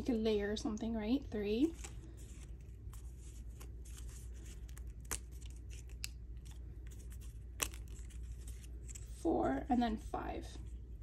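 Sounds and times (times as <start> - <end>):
paper rustling: 1.6 - 9.3
cardstock pieces snapping: 3.5 - 9.0.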